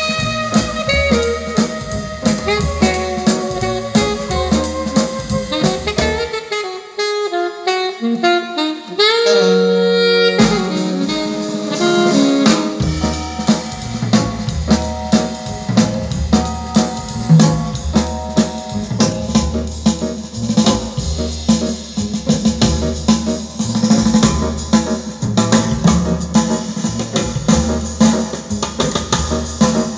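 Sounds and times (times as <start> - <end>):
bass: 0.0 - 6.5, 9.2 - 29.9
saxophone: 0.0 - 18.0
drum kit: 0.0 - 29.9.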